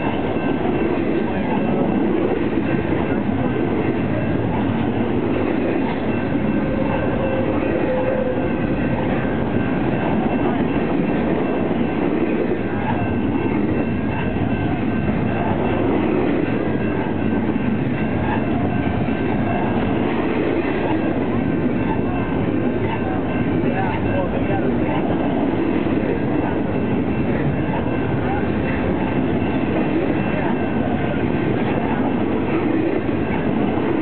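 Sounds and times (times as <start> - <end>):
freight train wheels on rails: 0.0 - 34.0.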